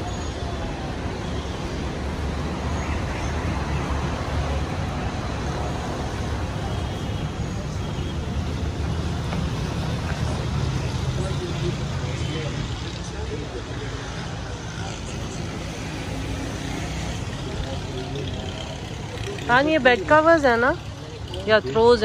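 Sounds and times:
low rumble of road traffic: 0.0 - 22.0.

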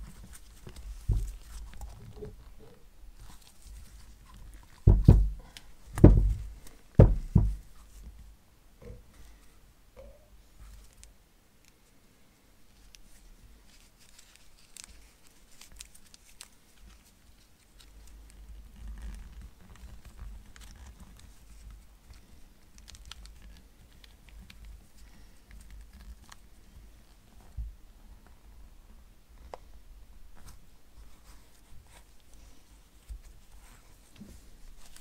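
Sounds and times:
gloved hands rustling: 0.0 - 8.2, 12.7 - 27.8, 30.3 - 35.0
small clicks and ticks: 17.8 - 24.8.

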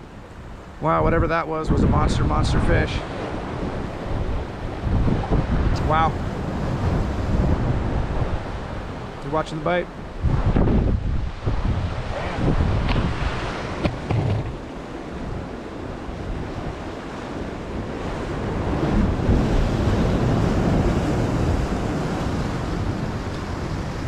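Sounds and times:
wind rumbling on microphone: 0.0 - 24.0
surf breaking against rocks: 10.0 - 24.0
short knocks: 13.8 - 14.6.

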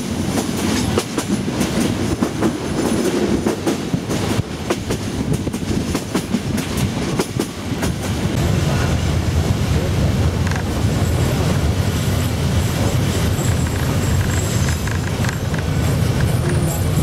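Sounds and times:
train rumble: 0.0 - 17.0
wheel clicks over rail joints: 13.5 - 16.6.

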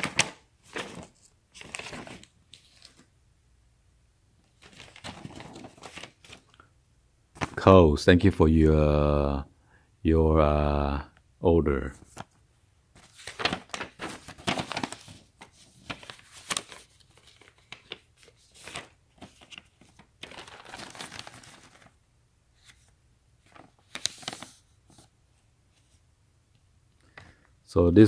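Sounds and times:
paper and plastic packaging rustling: 0.0 - 3.1, 4.5 - 6.6, 13.0 - 22.0, 22.6 - 25.1.

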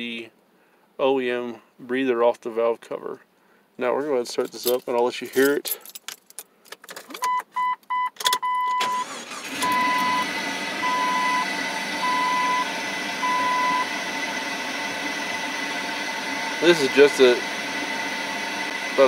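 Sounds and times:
key rattling in ignition: 4.3 - 7.4
car engine starting and idling: 6.7 - 19.0
dashboard warning chime beeping: 7.2 - 14.6.

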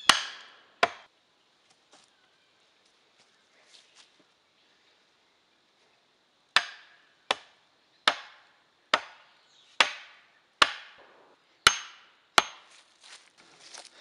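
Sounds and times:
hatchet pounding wooden stake: 0.0 - 1.1, 6.6 - 12.7.

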